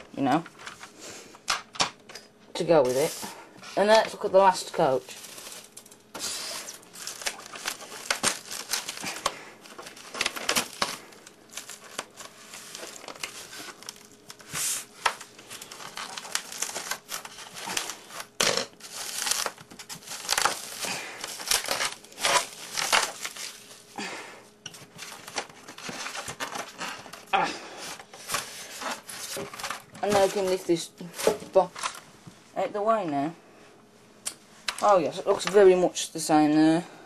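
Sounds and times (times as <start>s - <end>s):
plastic wrapping crinkling: 2.8s - 32.0s.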